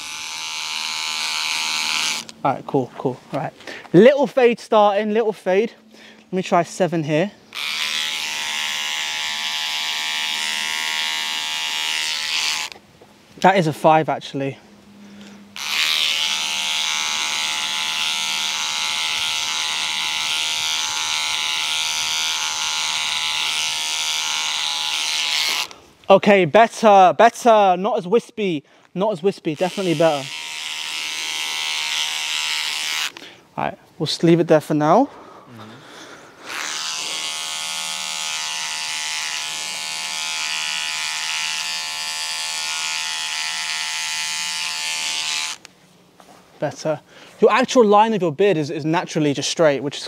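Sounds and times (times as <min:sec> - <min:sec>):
electric beard trimmer buzzing: 0:00.0 - 0:02.4, 0:07.5 - 0:12.8, 0:15.2 - 0:25.8, 0:29.5 - 0:33.3, 0:36.4 - 0:45.7.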